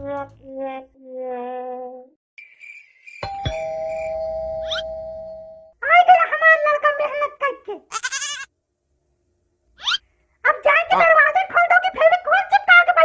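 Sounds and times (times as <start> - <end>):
ding-dong doorbell chime: 3.2 - 5.8.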